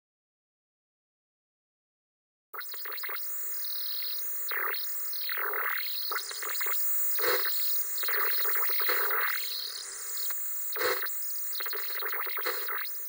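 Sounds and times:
crackling glitch bursts: 0:02.6 - 0:13.0
static electronic hiss: 0:02.6 - 0:13.0.

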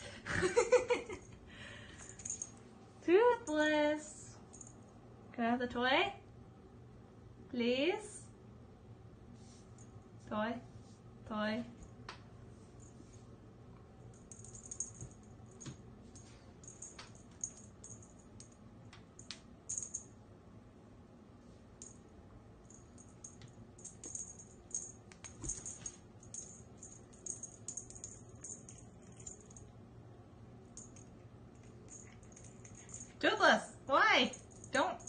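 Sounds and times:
cat playing with toy: 0:22.7 - 0:29.7, 0:30.7 - 0:33.2.

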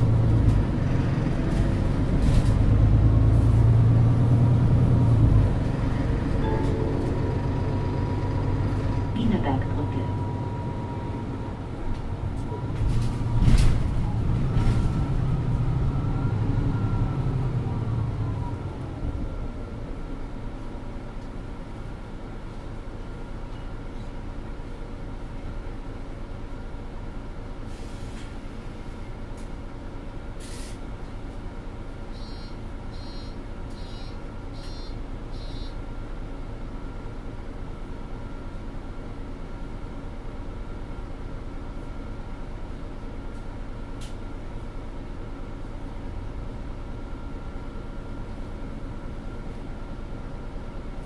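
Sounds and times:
bus engine running: 0:00.0 - 0:51.0
short high beeps: 0:06.4 - 0:07.6, 0:32.2 - 0:35.8.

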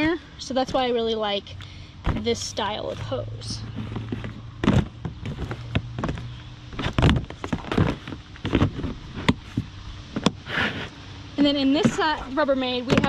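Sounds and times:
plastic knocks and thunks: 0:03.8 - 0:10.4.

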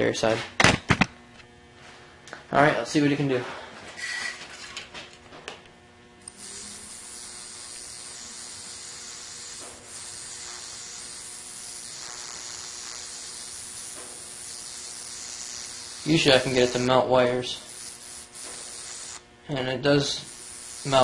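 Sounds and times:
electric arc hissing: 0:06.2 - 0:21.0.

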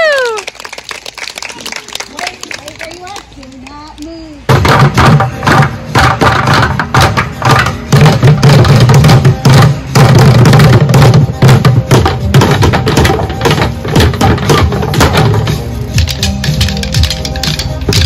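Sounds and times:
rapid sharp drum hits: 0:04.5 - 0:18.0.

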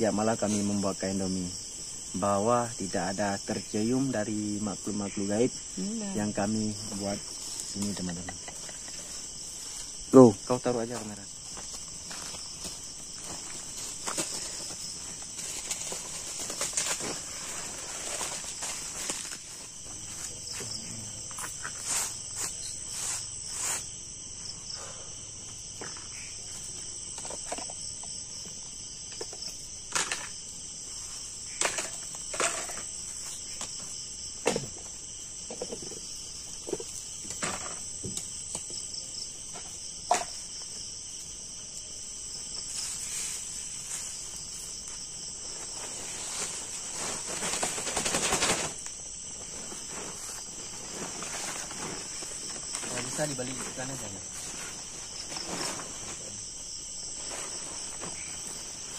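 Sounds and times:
night insects chorus: 0:00.0 - 0:58.9
plastic tarp rustling: 0:12.0 - 0:20.2, 0:45.4 - 0:56.4, 0:57.1 - 0:58.9.

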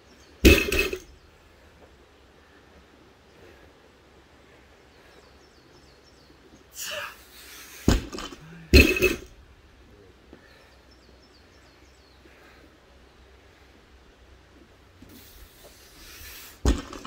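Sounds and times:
birds chirping faintly: 0:00.0 - 0:16.8
barbell hitting the ground: 0:00.4 - 0:01.1, 0:07.9 - 0:09.4, 0:16.6 - 0:17.0
sharp exhale of effort: 0:15.1 - 0:16.7.

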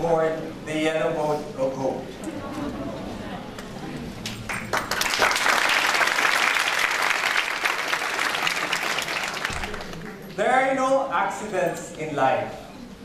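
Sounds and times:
audience applauding: 0:04.5 - 0:10.4.

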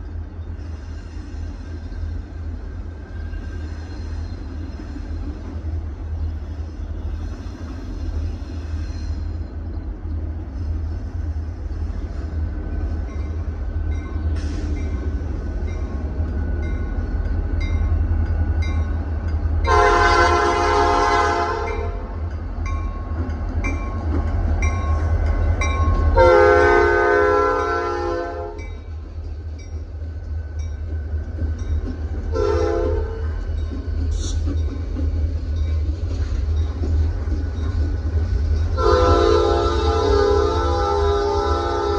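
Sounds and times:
diesel locomotives rumbling: 0:00.0 - 0:41.9
locomotive horn blasts: 0:19.7 - 0:22.1, 0:26.2 - 0:28.7, 0:32.3 - 0:33.2, 0:38.8 - 0:41.9.

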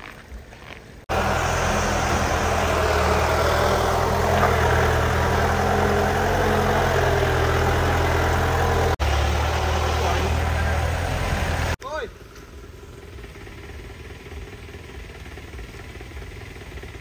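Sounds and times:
vehicle engine running: 0:00.6 - 0:17.0.

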